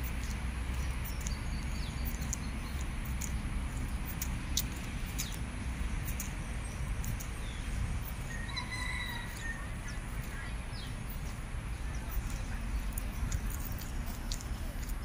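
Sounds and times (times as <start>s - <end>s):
rooster crowing: 8.3s - 9.7s.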